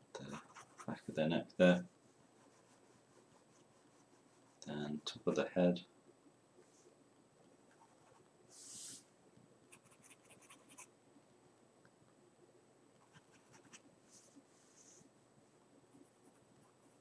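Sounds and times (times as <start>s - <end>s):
pencil scratching on paper: 0.2s - 1.0s, 2.2s - 4.6s, 9.7s - 10.9s, 13.0s - 15.1s.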